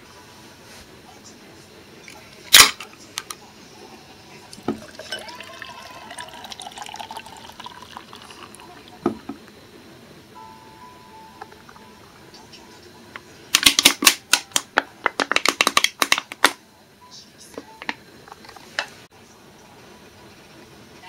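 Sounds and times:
can cracked open with hiss: 2.5 - 2.9
beer pouring into glass: 4.3 - 9.5.

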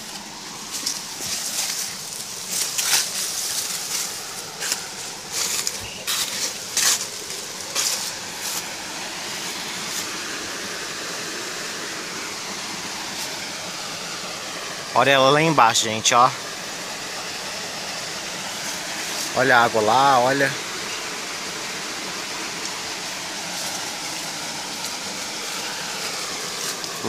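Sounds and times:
brushing past dry grass: 0.0 - 10.3, 23.4 - 27.0
footsteps crunching through dry leaves: 0.0 - 10.4, 23.4 - 27.0
waterfall rushing: 0.0 - 27.0.

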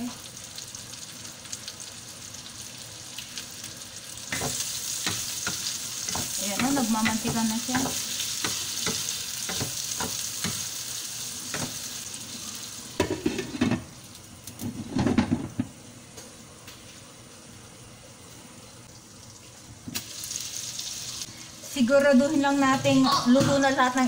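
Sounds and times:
meat sizzling in frying pan: 0.0 - 14.5, 19.0 - 21.3
spatula scraping and tapping pan: 4.3 - 10.7.

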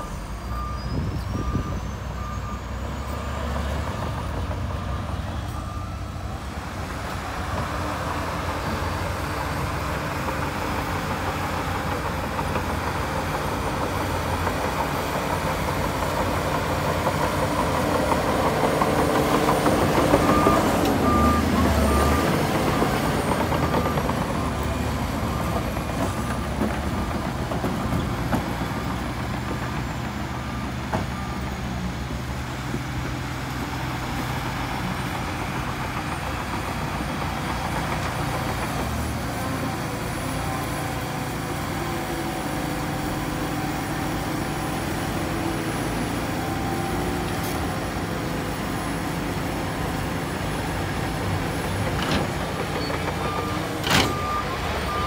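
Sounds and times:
reversing alarm beeping: 0.0 - 7.6, 19.0 - 26.7, 52.7 - 55.0
diesel engine noise: 0.0 - 55.0.

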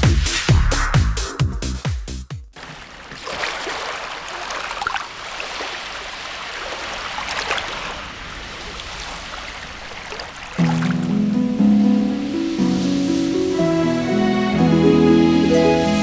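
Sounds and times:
small water splashes: 2.6 - 11.2
water rushing: 2.6 - 16.0.

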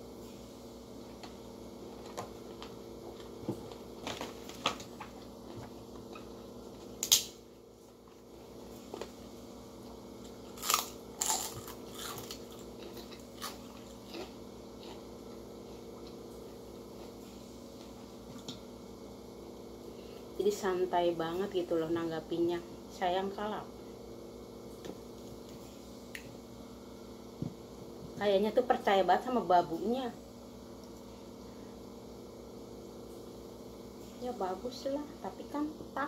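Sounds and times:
steady low hum: 0.0 - 36.0
crackers crunching: 1.2 - 9.2, 9.8 - 18.6.

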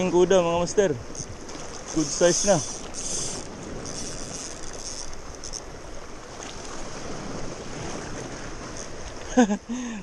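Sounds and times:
sea waves washing over rocks: 0.0 - 9.4.

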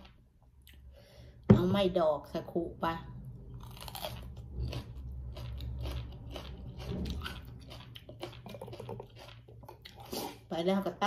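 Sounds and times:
person crunching raw vegetable: 3.4 - 10.5.

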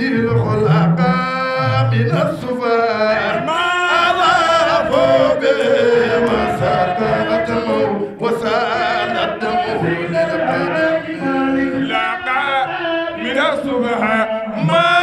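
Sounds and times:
men singing unaccompanied: 0.0 - 15.0.

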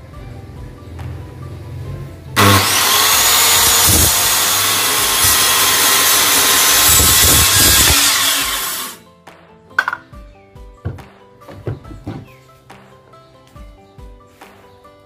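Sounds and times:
circular saw cutting wood: 2.4 - 9.0.

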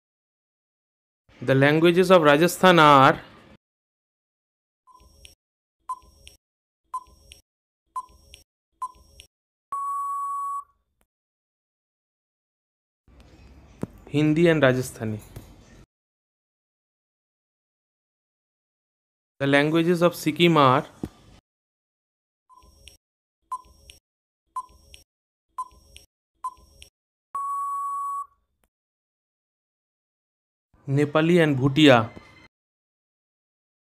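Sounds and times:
long steady beep: 9.7 - 10.7, 27.4 - 28.4.

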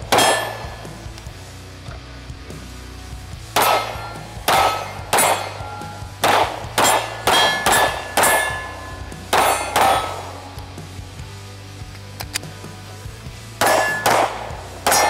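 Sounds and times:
pistol shots with metallic ring: 0.0 - 1.1, 3.6 - 10.4, 13.6 - 15.0.

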